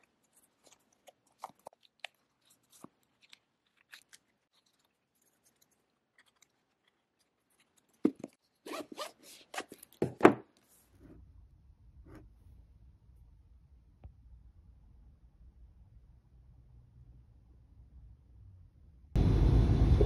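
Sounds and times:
rustling: 0:00.0 - 0:11.2.

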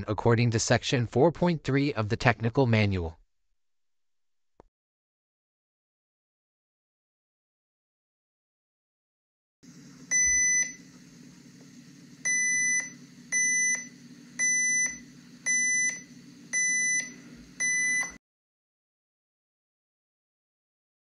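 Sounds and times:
short high beeps from speaker: 0:12.3 - 0:16.0, 0:16.6 - 0:18.2.

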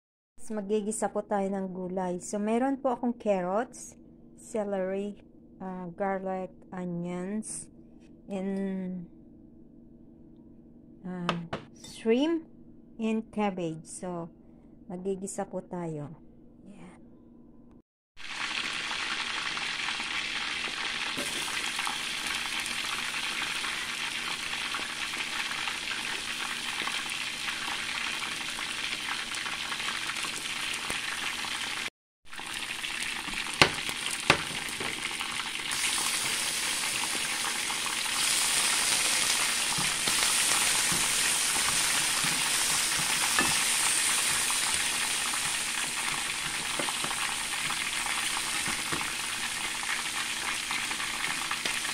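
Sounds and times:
onions sizzling in oil: 0:18.2 - 0:51.9.

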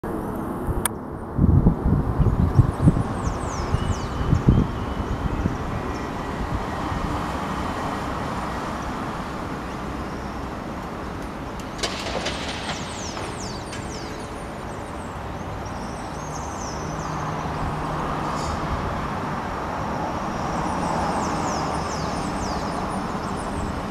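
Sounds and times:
road traffic noise: 0:00.0 - 0:23.9
small birds chirping: 0:02.2 - 0:06.9, 0:09.8 - 0:18.7, 0:20.3 - 0:23.9.

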